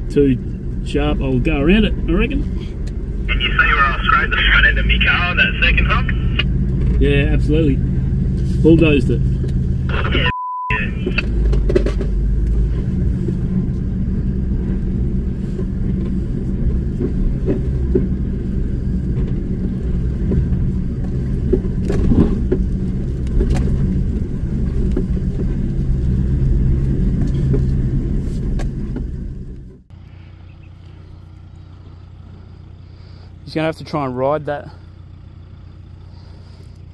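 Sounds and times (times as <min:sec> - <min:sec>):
faint outdoor background: 0:00.0 - 0:16.0, 0:28.2 - 0:36.9
car engine at low revs: 0:00.0 - 0:36.9
vehicle knocks from rough ride: 0:20.2 - 0:25.7.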